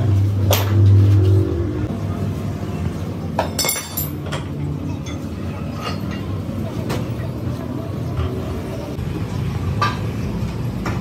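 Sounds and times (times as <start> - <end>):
metal clinks: 3.4 - 4.5.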